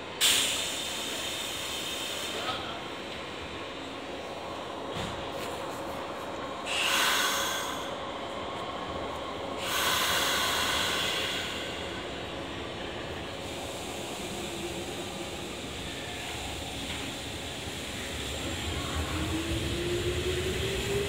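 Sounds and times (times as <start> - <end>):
train humming: 0.0 - 21.0
compressed air hissing: 6.7 - 7.9, 9.6 - 12.0.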